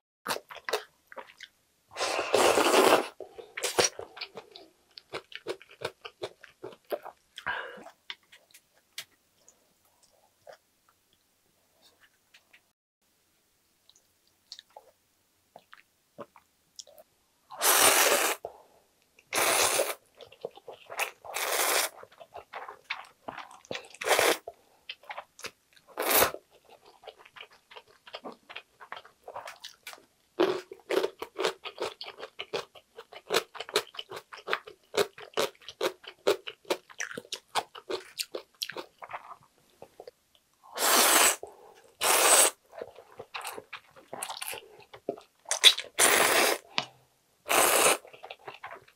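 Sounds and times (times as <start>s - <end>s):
noodles slurped: 42.0s - 42.6s, 47.5s - 48.3s.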